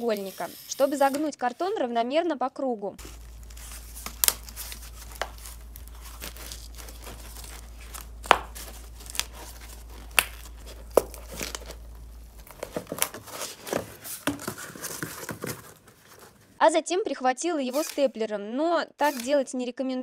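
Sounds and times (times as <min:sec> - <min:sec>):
cardboard crackling and creaking: 0:03.0 - 0:16.6
low steady hum: 0:03.0 - 0:16.6
sharp cracks of cardboard folds: 0:03.0 - 0:16.6.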